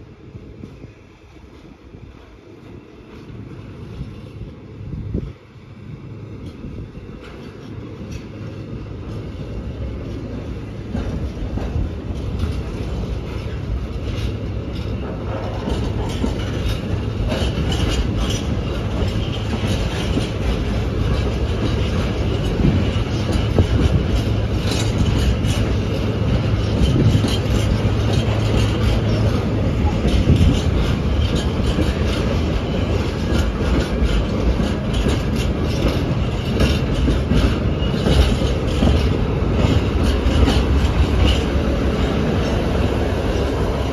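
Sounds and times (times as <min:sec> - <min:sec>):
train wheels clicking over rail joints: 0:00.0 - 0:43.9.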